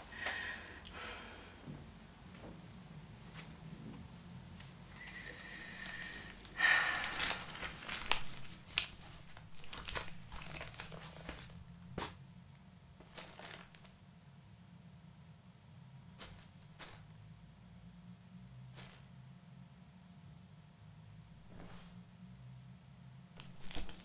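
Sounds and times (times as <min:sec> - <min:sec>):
paper crinkling: 0:05.7 - 0:12.2, 0:13.0 - 0:14.0, 0:16.2 - 0:17.1, 0:23.4 - 0:24.0.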